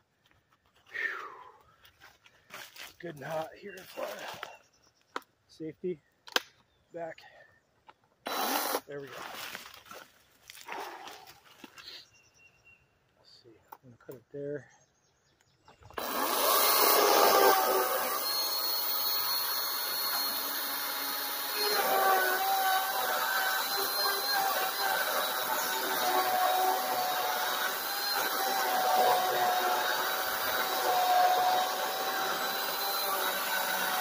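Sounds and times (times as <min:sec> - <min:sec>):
electric chainsaw motor whining: 0:08.3 - 0:08.9, 0:16.0 - 0:34.0.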